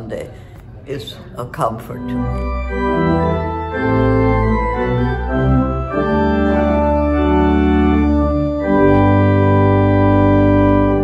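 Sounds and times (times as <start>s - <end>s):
church organ playing chords: 1.9s - 11.0s.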